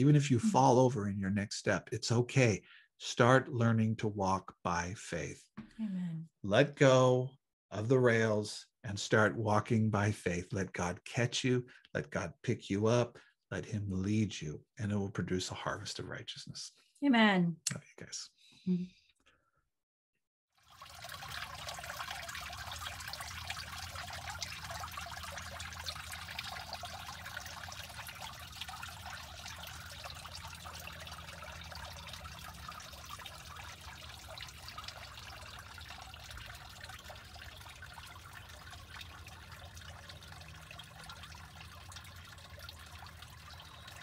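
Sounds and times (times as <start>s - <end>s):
water trickling over stones: 20.6s - 44.0s.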